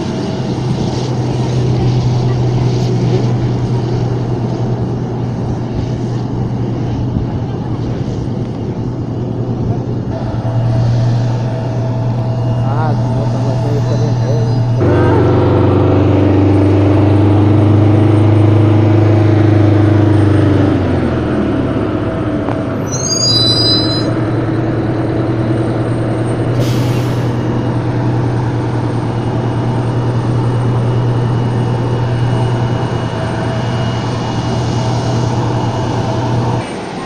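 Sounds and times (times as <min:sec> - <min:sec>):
heavy vehicle engine humming: 0:00.0 - 0:37.0
short high squeal: 0:22.8 - 0:24.2.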